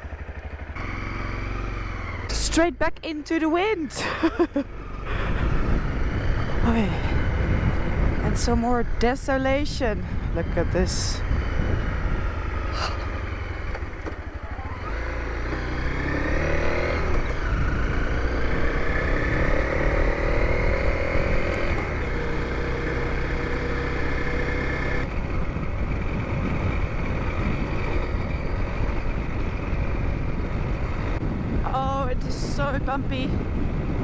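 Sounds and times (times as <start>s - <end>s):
motorcycle engine pulling away: 0.0s - 2.4s, 11.3s - 31.2s
wind buffeting microphone: 4.0s - 34.0s.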